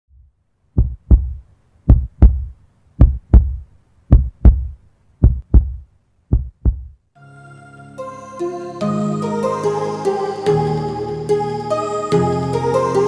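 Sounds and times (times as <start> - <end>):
heartbeat thumps: 0.2 - 7.0.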